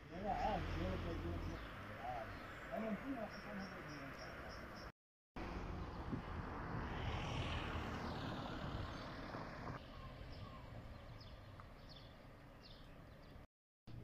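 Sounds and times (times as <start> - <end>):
road ambience: 0.0 - 14.0
vehicle passing close by: 5.4 - 12.4.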